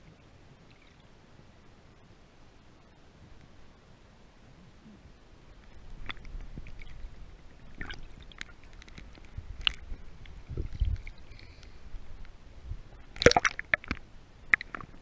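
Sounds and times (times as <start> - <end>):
muffled underwater rumble: 4.5 - 15.0.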